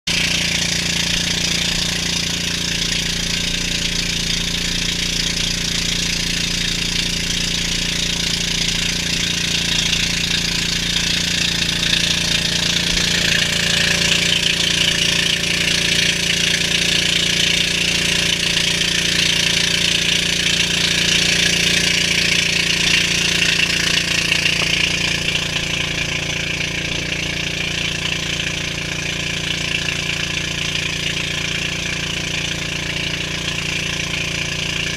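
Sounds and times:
boat engine running: 0.0 - 34.9.

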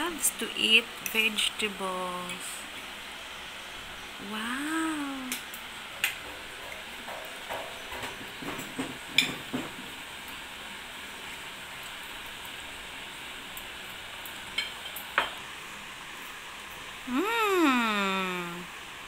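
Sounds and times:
steady hiss: 0.0 - 19.0
person calling out: 17.1 - 18.7.

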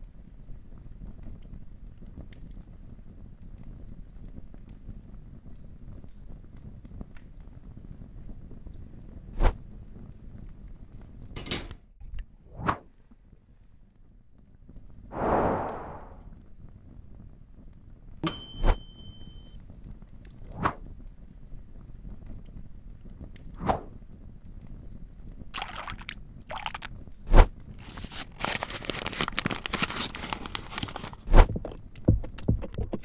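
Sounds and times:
pouring or stirring hiss: 25.5 - 31.8.

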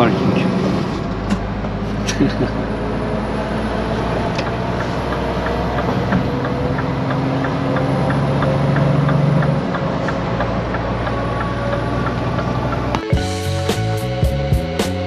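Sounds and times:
road and tyre noise: 0.0 - 13.2
truck diesel engine drone: 0.0 - 15.0
faint regular ticking: 4.4 - 13.0.

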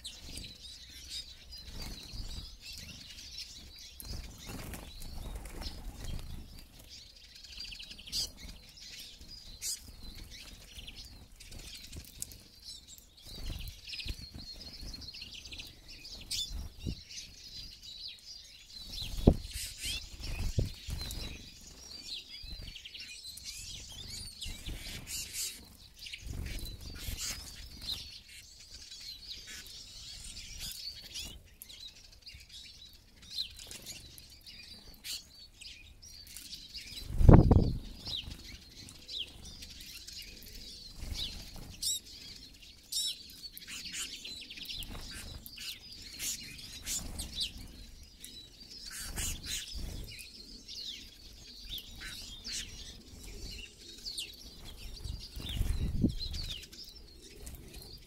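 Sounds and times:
small birds chirping and twittering: 0.0 - 58.0
wings fluttering: 1.6 - 7.0, 18.8 - 21.9, 23.5 - 28.0, 37.0 - 39.0, 44.7 - 47.7, 48.8 - 50.2, 54.6 - 56.7.

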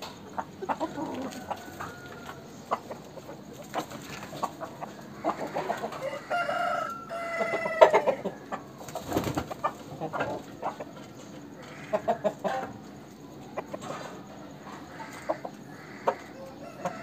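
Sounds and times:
chicken clucking: 0.0 - 17.0
rooster crowing: 0.8 - 2.6, 5.2 - 8.6, 15.1 - 17.0.

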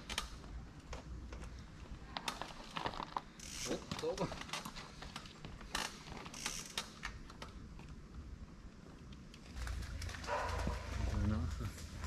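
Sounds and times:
bike clicks and ticks: 0.0 - 8.0.

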